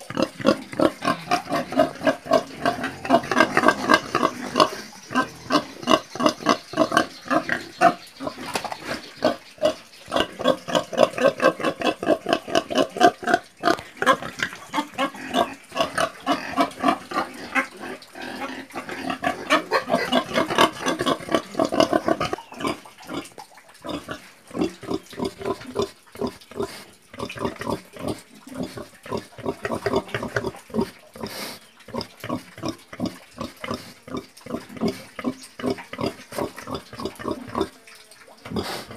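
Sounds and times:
pig grunting: 0:00.0 - 0:37.8, 0:38.5 - 0:38.9.

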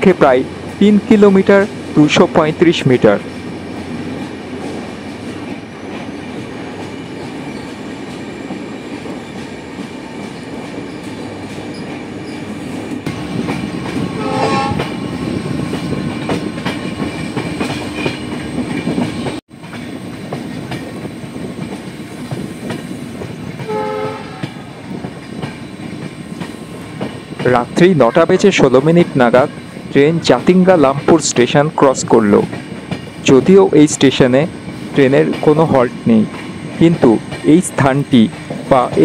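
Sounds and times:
train wheels rumbling: 0:00.0 - 0:39.0
train horn: 0:14.1 - 0:15.0, 0:23.6 - 0:24.6.

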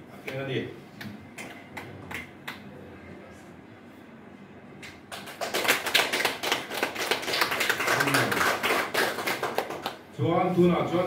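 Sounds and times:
low murmur in a room: 0:00.0 - 0:11.0
audience applauding: 0:05.1 - 0:10.0.

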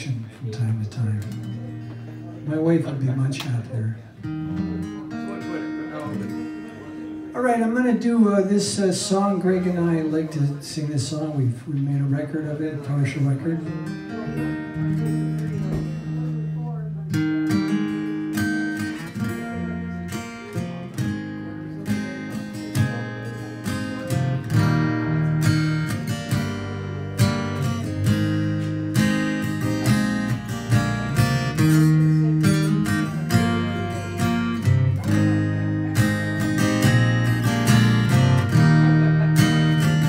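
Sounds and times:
acoustic guitar strumming: 0:00.0 - 0:40.0
electric bass low notes: 0:23.9 - 0:40.0.

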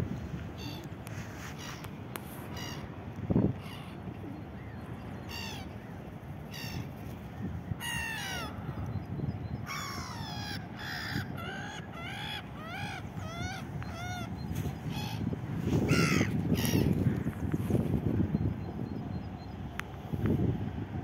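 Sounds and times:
gulls calling: 0:00.6 - 0:17.4.

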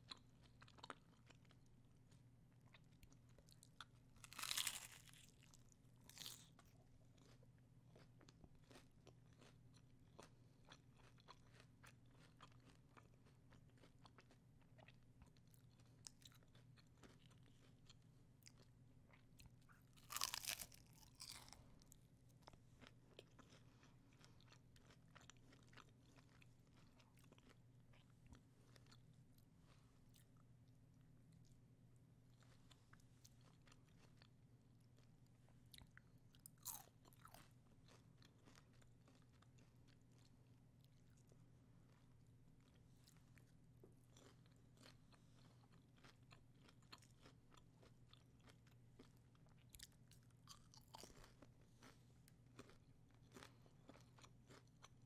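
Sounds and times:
biting crunchy taco shells: 0:00.0 - 0:30.4, 0:35.8 - 0:55.0
soft chewing clicks: 0:35.7 - 0:55.0.

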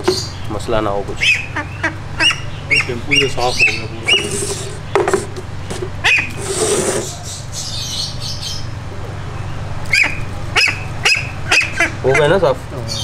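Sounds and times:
duck calling: 0:01.2 - 0:04.8, 0:06.0 - 0:07.4, 0:09.9 - 0:12.5
wet rubbing of feathers: 0:04.0 - 0:04.9.

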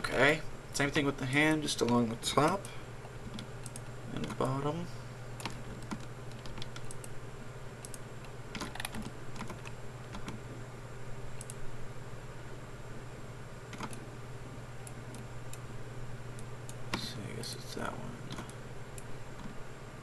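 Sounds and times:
steady low hum: 0:00.0 - 0:20.0
keyboard key presses: 0:05.4 - 0:07.1, 0:07.8 - 0:10.4, 0:13.7 - 0:14.0
mouse clicks: 0:11.4 - 0:11.6.

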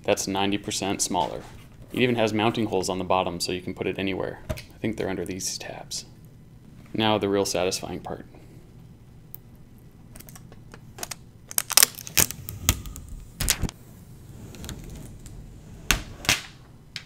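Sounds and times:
packaging rustling: 0:10.2 - 0:13.8.

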